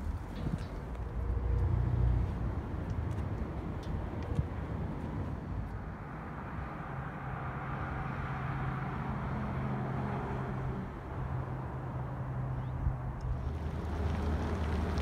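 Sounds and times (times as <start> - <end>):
outdoor noise: 0.0 - 15.0
vehicle engine humming: 10.6 - 15.0.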